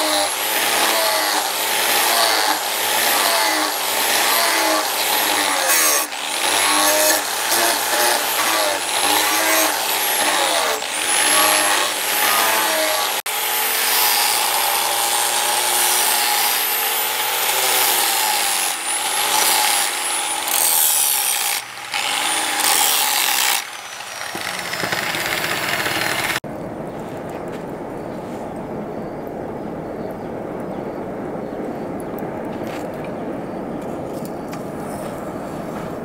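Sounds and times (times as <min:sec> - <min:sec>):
angle grinder sanding steel: 0:00.0 - 0:26.4.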